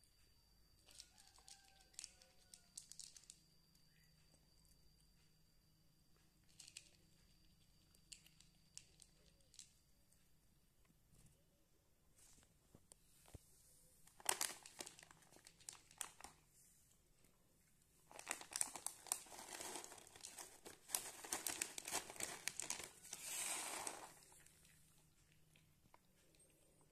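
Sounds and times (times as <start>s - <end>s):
plastic packaging crinkling: 14.1s - 16.4s, 18.0s - 24.8s.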